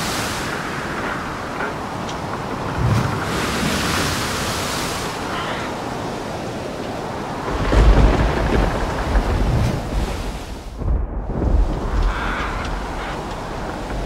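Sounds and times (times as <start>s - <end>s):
wind and surf rushing: 0.0s - 14.0s
deep rumble: 7.5s - 14.0s.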